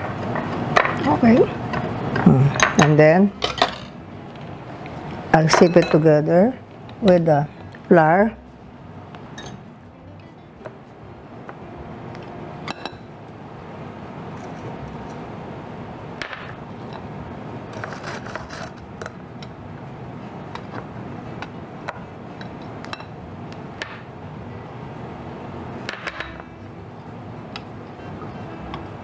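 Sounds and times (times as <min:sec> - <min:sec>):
low steady background noise: 0:00.0 - 0:29.0.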